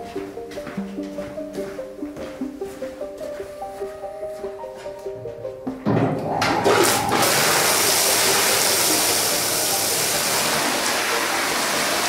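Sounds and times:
pressure washer spray hissing: 7.3 - 12.0.

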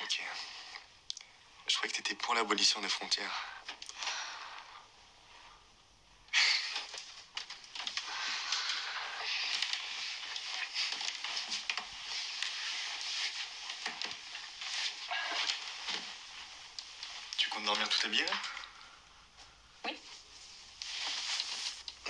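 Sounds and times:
bed linen rustling: 1.8 - 22.0.

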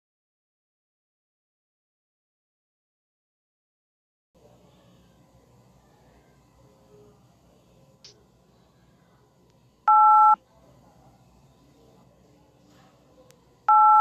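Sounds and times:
telephone keypad tone: 9.9 - 10.4, 13.7 - 14.0.

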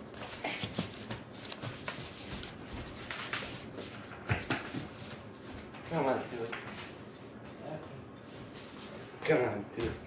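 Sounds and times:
sandal footsteps on tile floor: 0.0 - 6.0.

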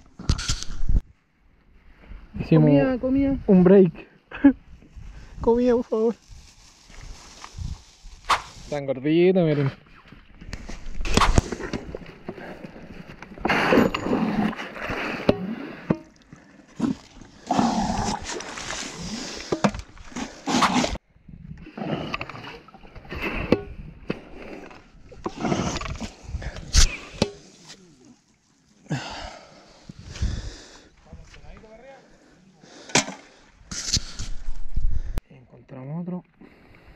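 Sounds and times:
hands digging in wet ground: 16.8 - 21.0.

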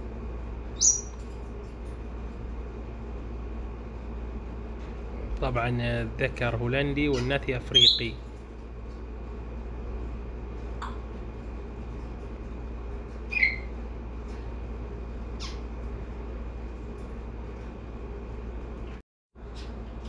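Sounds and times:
steady low hum: 0.0 - 20.0
parrots calling: 0.8 - 1.2, 7.0 - 8.2, 13.2 - 13.8, 15.4 - 15.8.

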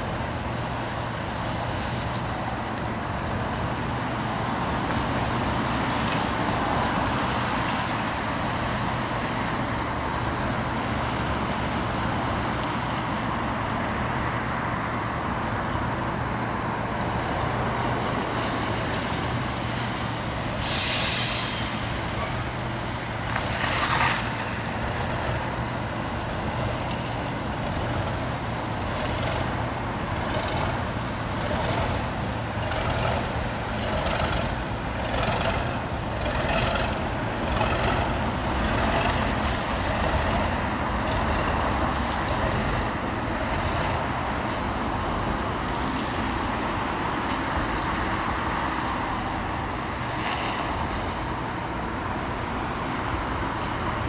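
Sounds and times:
diesel engine hum: 0.0 - 54.0
train rumbling over bridge: 0.0 - 54.0
loud air hiss: 20.6 - 22.0
wheels clicking over rail joints: 25.0 - 44.1.

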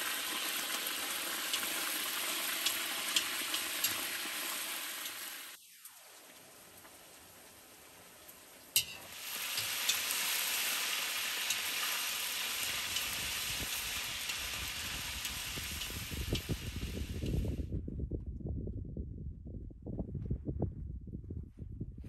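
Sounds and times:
meat sizzling in hot oil: 0.0 - 5.9, 8.8 - 17.5.

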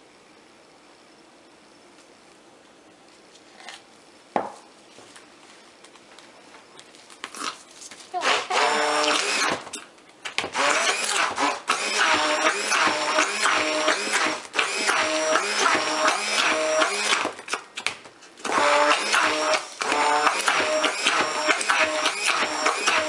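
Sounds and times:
electric stick blender running: 8.2 - 9.6, 10.5 - 17.4, 18.5 - 23.0.

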